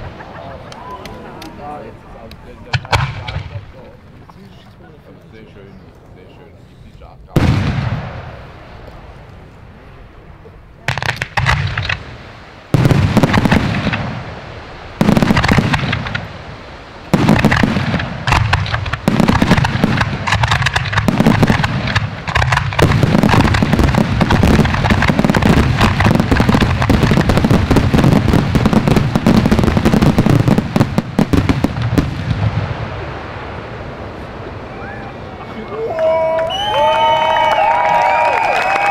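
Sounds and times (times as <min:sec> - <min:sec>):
firework shells bursting: 0:02.3 - 0:04.4, 0:10.9 - 0:32.6.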